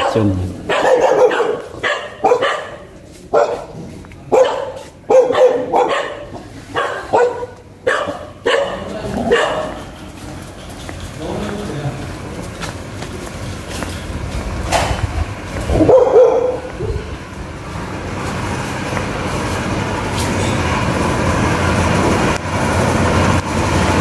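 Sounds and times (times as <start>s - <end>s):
dog barking: 0.0s - 9.8s, 15.7s - 17.1s.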